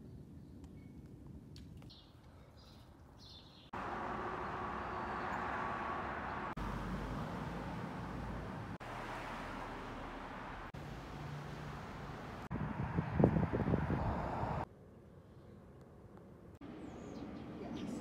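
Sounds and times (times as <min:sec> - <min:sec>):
distant traffic hiss: 0:03.8 - 0:12.5.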